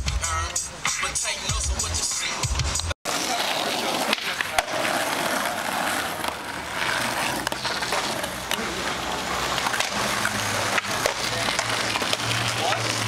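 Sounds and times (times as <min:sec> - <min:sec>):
skateboard wheels rolling on asphalt: 0:01.6 - 0:13.0.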